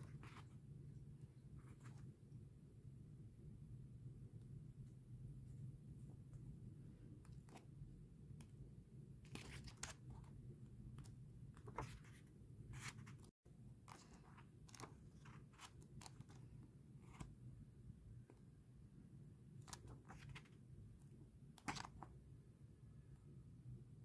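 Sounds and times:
pages rustling and turning: 0.0s - 0.6s, 9.3s - 17.4s, 19.6s - 20.6s, 21.6s - 22.1s.

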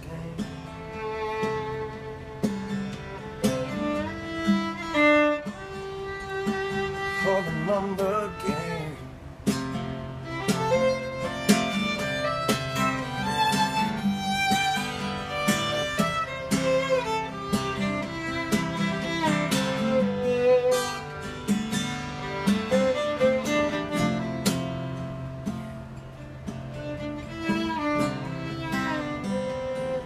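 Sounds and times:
fiddle melody: 0.0s - 30.0s
strummed acoustic guitar: 0.0s - 30.0s.

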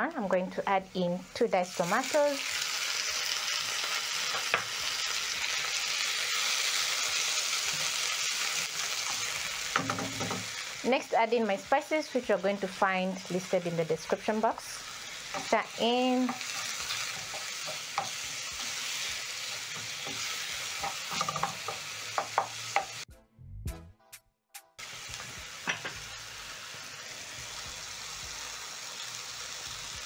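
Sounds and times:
vegetables sizzling in oil: 0.0s - 23.1s, 24.8s - 30.0s
wooden spoon scraping a pan: 15.1s - 22.9s.

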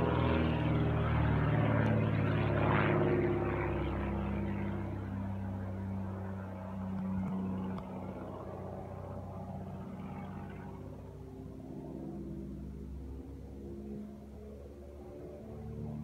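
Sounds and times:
propeller plane engine drone: 0.0s - 16.0s.

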